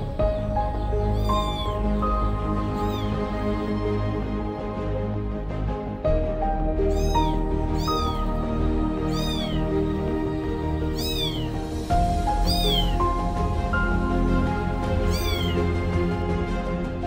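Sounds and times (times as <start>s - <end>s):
background music with held notes: 0.0s - 17.0s
kitten mewing: 1.0s - 3.4s, 6.9s - 8.4s, 9.0s - 9.8s, 10.8s - 11.6s, 12.4s - 13.0s, 15.0s - 15.7s.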